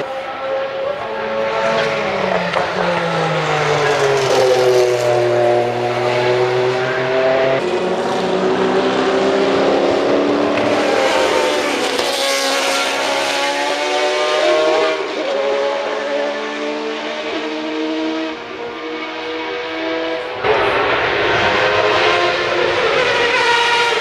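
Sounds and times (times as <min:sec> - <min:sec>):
race cars passing by: 0:00.0 - 0:24.0.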